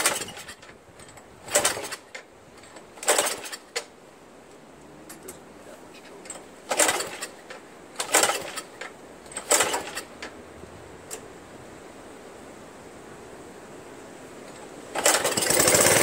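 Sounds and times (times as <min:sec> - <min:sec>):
recoil starter rope pulls: 0:00.0 - 0:03.9, 0:06.0 - 0:10.3, 0:14.9 - 0:16.0.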